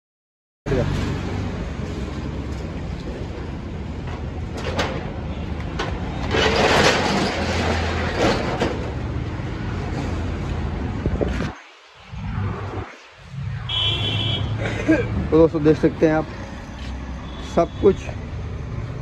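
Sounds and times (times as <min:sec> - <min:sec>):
rolling shutter rattling: 0:05.8 - 0:09.0.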